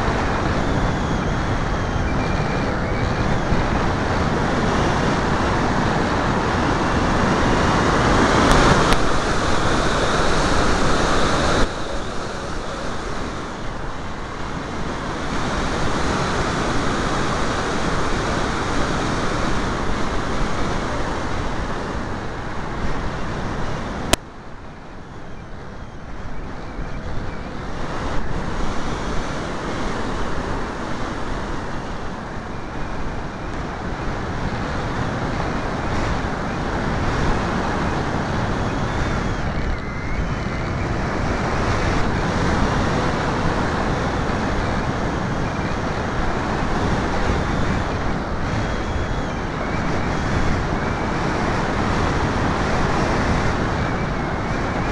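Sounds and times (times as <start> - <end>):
wind rushing over microphone: 0.0 - 54.9.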